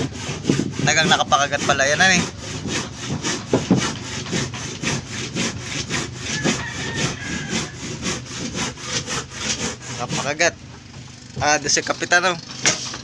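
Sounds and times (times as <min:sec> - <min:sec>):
hand saw cutting wood: 0:00.0 - 0:13.0.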